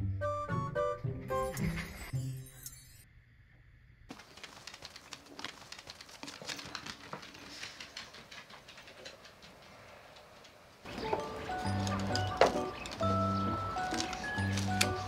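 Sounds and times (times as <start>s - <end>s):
dog claws clicking on floor: 4.1s - 10.7s.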